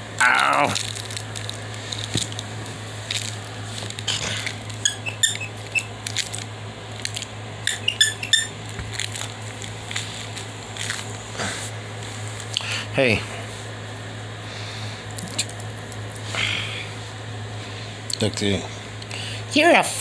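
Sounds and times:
steady low hum: 0.0 - 20.0
puppy squeaking: 4.8 - 5.9, 7.6 - 8.6.

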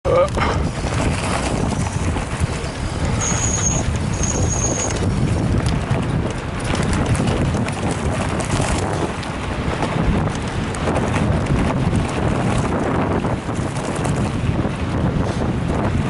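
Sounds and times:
bike rattling over rough track: 0.1 - 16.0
wind buffeting microphone: 0.1 - 16.0
high whistles: 3.2 - 5.0.

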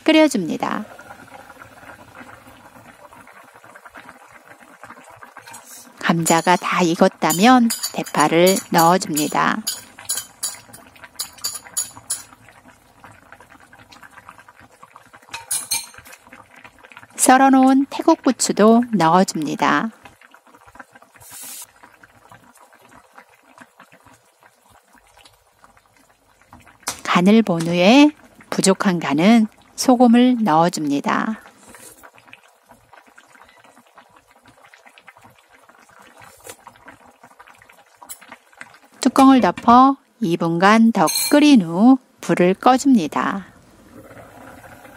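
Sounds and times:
stew bubbling: 0.0 - 29.8, 30.4 - 39.9, 42.3 - 44.9
utensil clicking on plate and pan: 6.3 - 12.3.

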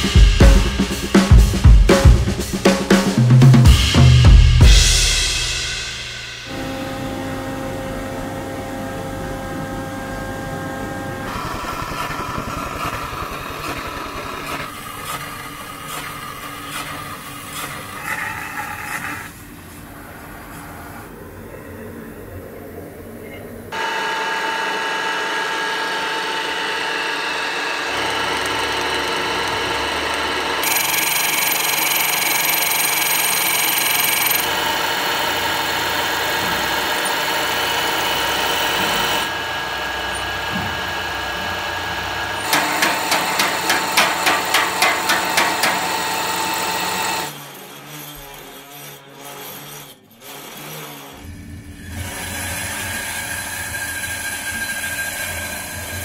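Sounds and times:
workshop sound: 0.0 - 19.8, 23.7 - 56.0
milling machine cutting metal: 6.5 - 18.3, 23.8 - 56.0.

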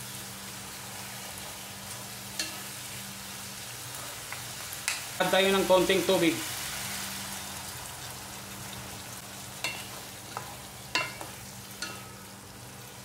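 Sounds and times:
sauce sizzling in a wok: 0.0 - 13.0.

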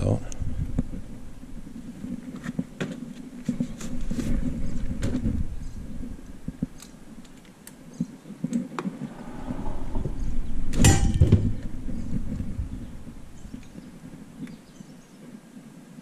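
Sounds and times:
metal scrape and clunk: 9.0 - 12.1.

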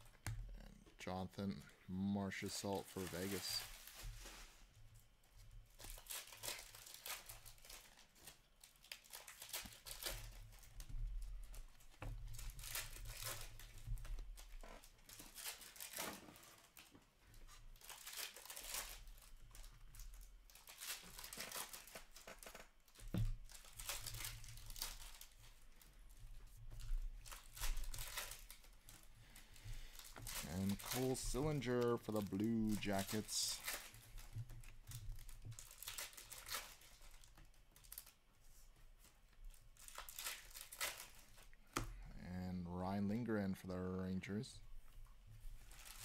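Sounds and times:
card pack wrappers crinkling and tearing: 0.0 - 4.6, 5.6 - 38.2, 39.0 - 42.1, 45.6 - 46.0
cards rustling: 0.5 - 4.6, 12.3 - 38.2, 39.0 - 42.0.

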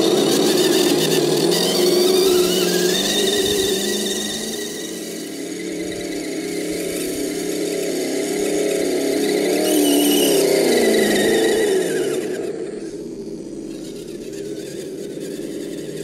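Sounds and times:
electric motor whine of toy vehicle: 0.0 - 16.0.

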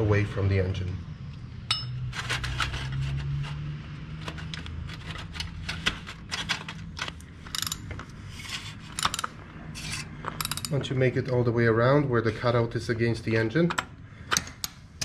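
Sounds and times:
steady low hum: 0.0 - 15.0
oil filter wrench clicks and scrapes: 7.5 - 10.8.

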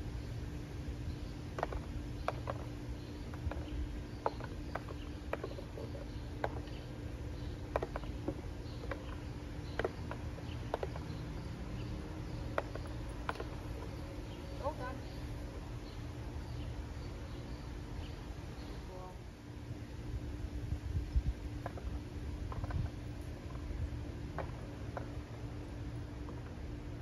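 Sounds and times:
low background hum: 0.0 - 27.0
treats clicking into cardboard boxes: 3.3 - 14.0.

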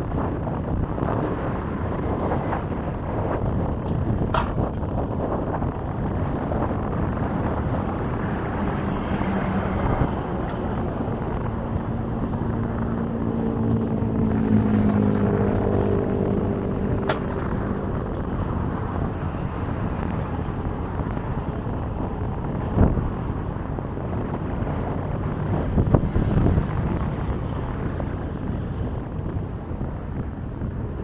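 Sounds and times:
wind rumbling on microphone: 0.0 - 31.0
engine droning past: 6.1 - 20.5.

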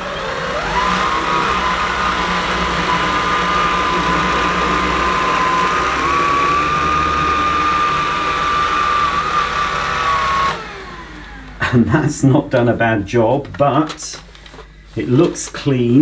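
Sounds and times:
stick vacuum motor whine: 0.0 - 11.9.

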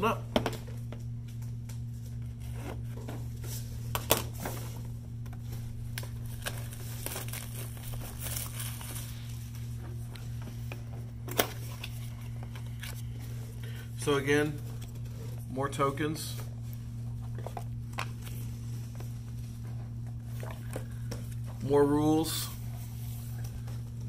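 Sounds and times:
steady low hum: 0.0 - 24.0
plastic wrap crinkling and tearing: 5.8 - 9.5.

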